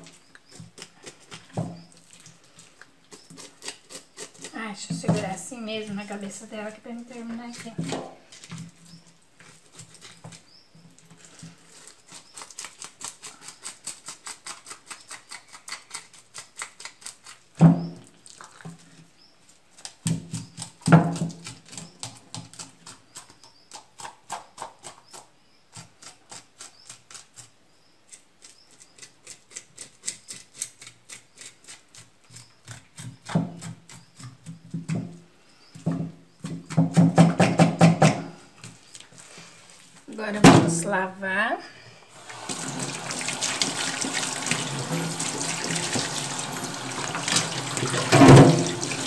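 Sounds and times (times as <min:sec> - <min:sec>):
knife scraping fish scales: 0:00.5 - 0:04.6, 0:11.1 - 0:17.6, 0:28.1 - 0:34.4.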